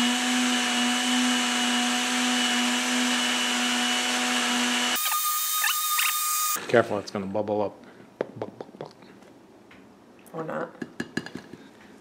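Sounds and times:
blender motor running: 0.0s - 6.6s.

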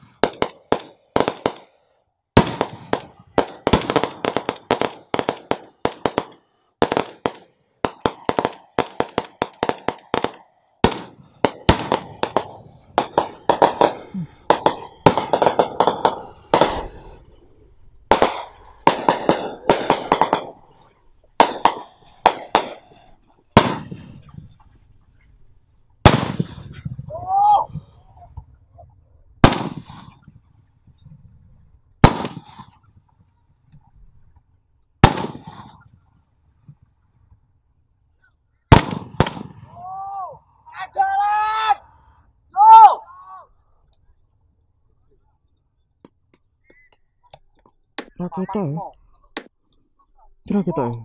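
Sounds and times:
firecrackers popping: 0.0s - 1.7s, 2.4s - 24.9s, 25.9s - 27.2s, 29.4s - 30.4s, 32.0s - 33.9s, 35.0s - 36.8s, 38.7s - 39.9s, 46.0s - 48.5s.

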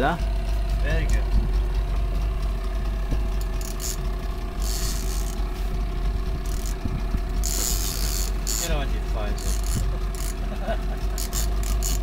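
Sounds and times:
boat engine idling: 0.0s - 12.0s.

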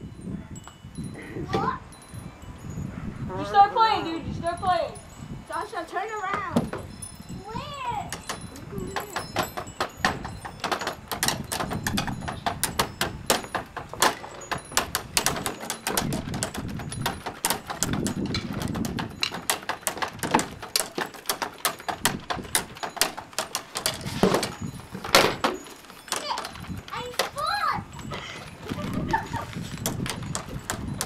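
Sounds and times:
rapid knocks and clicks: 8.1s - 27.4s, 29.1s - 31.0s
dull low thumps: 14.6s - 19.4s.

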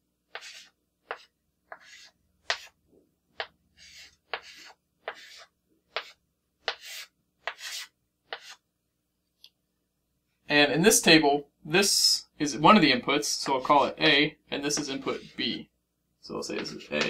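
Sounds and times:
chalk tapping and scratching: 0.3s - 2.8s, 3.4s - 8.6s, 16.5s - 17.0s.

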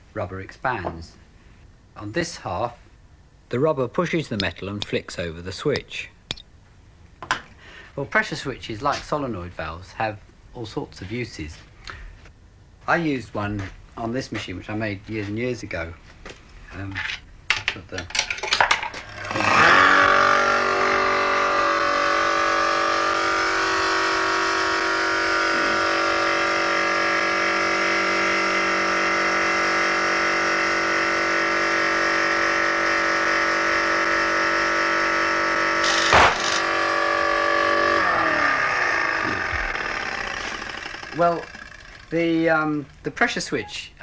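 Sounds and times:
machine motor running: 18.9s - 43.1s
balloon bursting: 35.8s - 36.7s.

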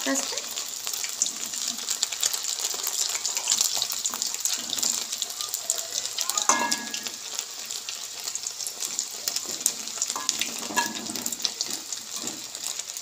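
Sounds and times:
chicken sizzling in hot oil: 0.0s - 13.0s
metal spatula clinking on pan: 6.4s - 7.2s, 10.2s - 12.4s.

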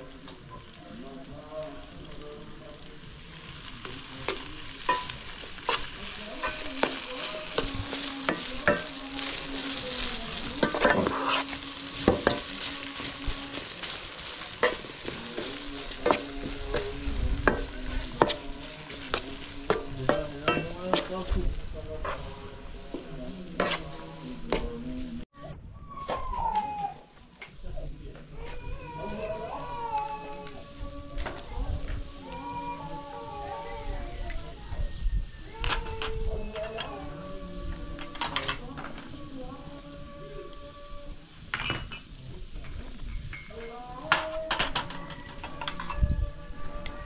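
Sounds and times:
food sizzling in a pan: 0.0s - 25.3s, 28.4s - 47.0s.

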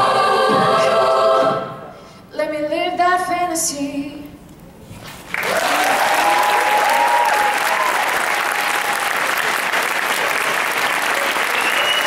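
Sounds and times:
audience applause: 5.3s - 12.0s
people cheering: 5.3s - 12.0s.

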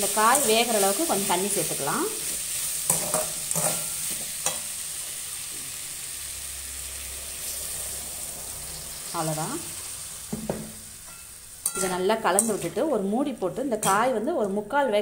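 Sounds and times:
metal ladle scraping a pan: 0.0s - 1.2s, 2.2s - 4.6s, 11.0s - 13.1s
vegetables sizzling in a pan: 0.0s - 15.0s.

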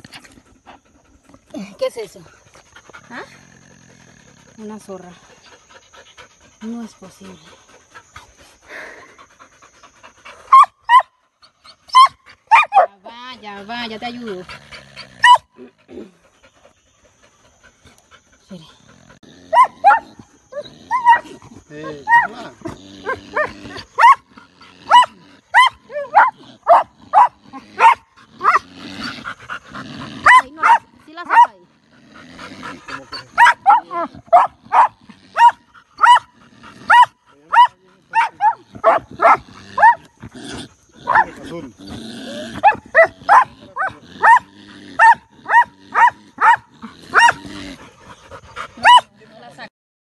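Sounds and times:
dogs barking: 10.4s - 11.2s, 11.8s - 13.0s, 15.2s - 15.7s, 19.4s - 31.6s, 32.4s - 40.3s, 41.0s - 41.7s, 42.5s - 49.4s
dog barking high-pitched: 11.9s - 12.9s, 19.5s - 20.0s, 23.0s - 24.2s, 30.2s - 31.6s, 33.4s - 36.3s, 36.9s - 40.0s, 45.0s - 47.4s.

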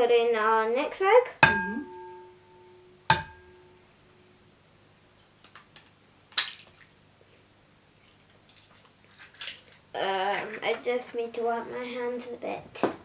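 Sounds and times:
egg tapping glass bowl: 1.4s - 3.7s.

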